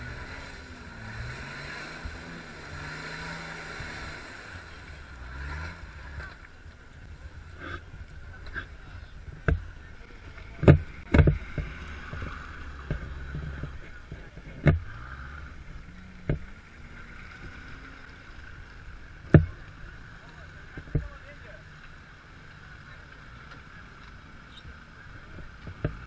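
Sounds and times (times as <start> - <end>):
vehicle engines revving: 0.0 - 26.0
sharp knocks and thumps: 10.4 - 15.0, 19.2 - 19.6.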